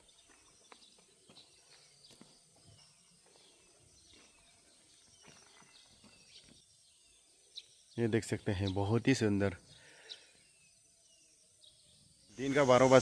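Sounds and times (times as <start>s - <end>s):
footsteps on paved path: 0.0s - 6.8s
birds chirping: 0.0s - 13.0s.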